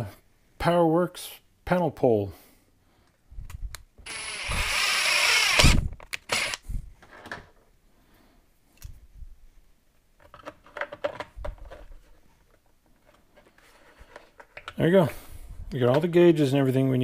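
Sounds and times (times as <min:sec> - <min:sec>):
cordless drill whining: 0:04.0 - 0:06.7
plastic handling noises: 0:10.2 - 0:15.1.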